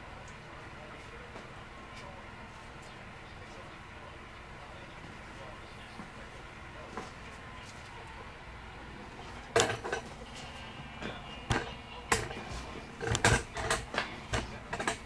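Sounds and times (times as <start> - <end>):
objects clicking and knocking on workbench: 9.6 - 10.2, 11.5 - 15.0.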